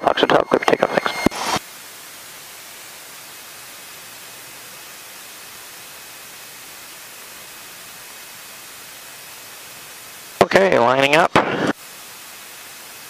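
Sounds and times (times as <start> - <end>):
radio voice transmission: 0.0 - 1.6, 10.4 - 11.8
radio static hiss: 0.0 - 13.0.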